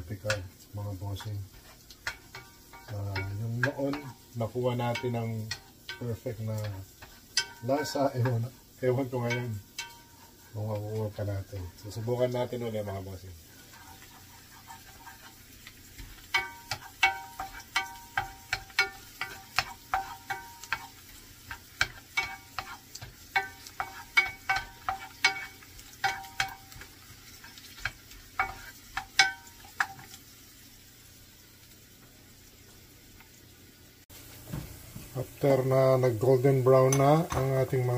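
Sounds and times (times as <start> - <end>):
garlic sizzling in oil: 0.0 - 37.9
wooden spoon clinking on pan: 2.0 - 4.2, 4.9 - 8.4, 9.2 - 10.2, 16.0 - 30.2.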